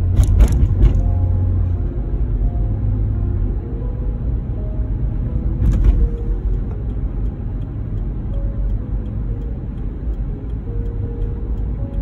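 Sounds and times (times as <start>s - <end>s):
car engine and tyres rumbling: 0.0s - 12.0s
faint regular ticking: 6.2s - 12.0s.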